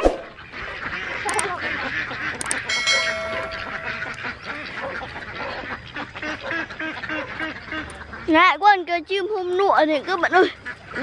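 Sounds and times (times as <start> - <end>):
ducks quacking: 0.3 - 8.9, 9.8 - 11.0
sharp clicks: 1.3 - 1.5, 2.3 - 4.2
ringing chime: 2.7 - 4.3.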